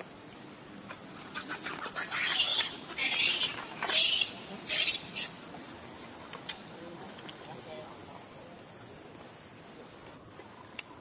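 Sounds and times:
baby monkey screeching: 1.3s - 5.4s.

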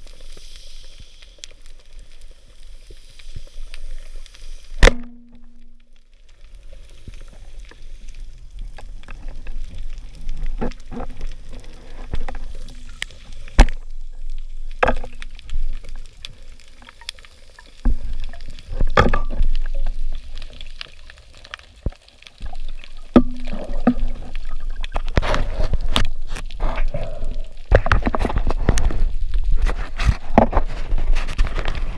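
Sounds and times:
bubbling and water movement: 0.0s - 31.9s
underwater water noise: 0.0s - 31.9s.

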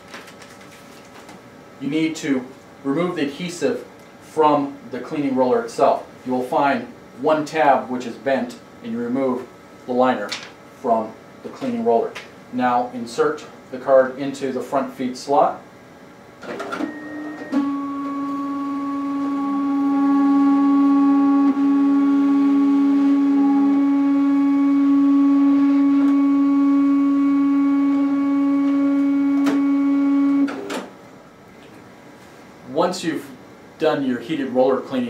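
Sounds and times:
printer motor whine: 16.5s - 30.9s
lower motor tone: 16.9s - 30.6s.

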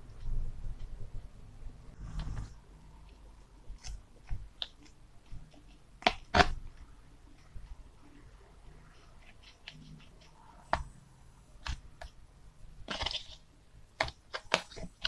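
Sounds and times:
rustling scrape: 2.0s - 2.6s.

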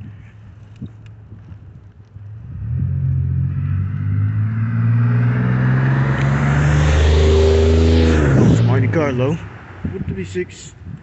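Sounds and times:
vehicle approaching: 1.4s - 10.0s.

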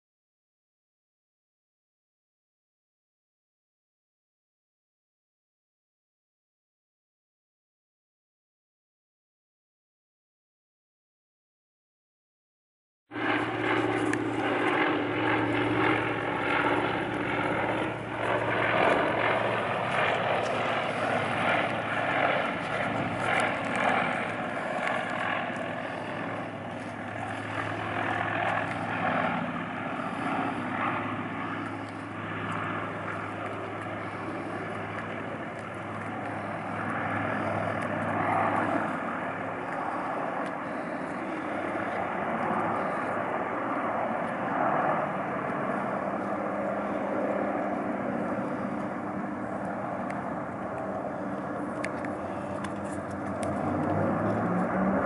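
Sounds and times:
propeller engines running: 13.1s - 55.0s.

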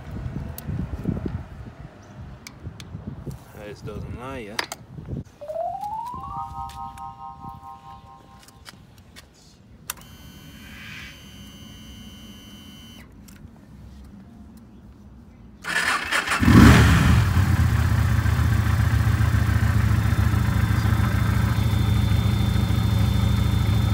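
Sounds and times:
motorcycle engine revving and idling: 16.2s - 23.9s.

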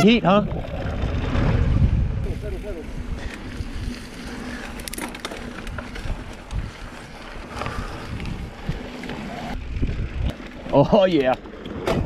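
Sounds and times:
bike rattles and clicks: 0.0s - 12.0s
wind and tyre rumble: 0.0s - 12.0s.

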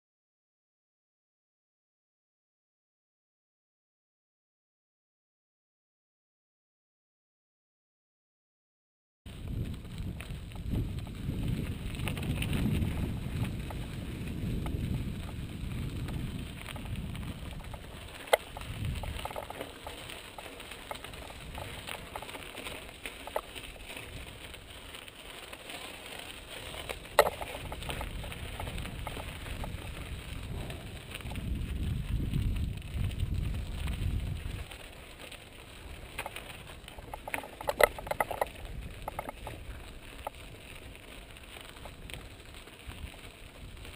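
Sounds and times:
tyres crunching on gravel: 9.3s - 43.9s
wind rumbling on microphone: 9.3s - 43.9s
bike clacking over rocks: 10.6s - 43.9s.

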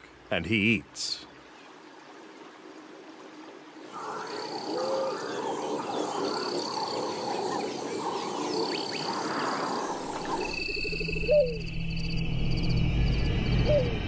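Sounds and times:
chorus of frogs calling: 3.9s - 11.6s.

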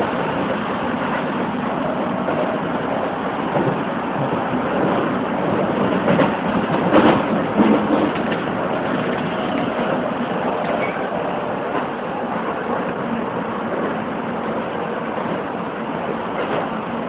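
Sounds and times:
train wheels rumbling on rail: 0.0s - 17.0s
sharp rail clack: 3.5s - 11.9s, 16.3s - 16.8s.

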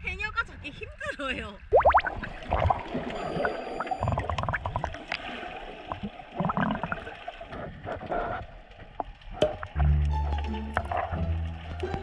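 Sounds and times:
bubbles gurgling underwater: 1.7s - 7.6s.

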